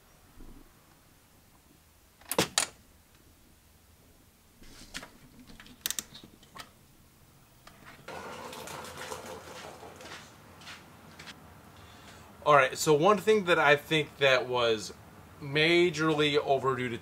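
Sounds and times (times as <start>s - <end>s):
fan whirring hiss: 2.3s - 17.0s.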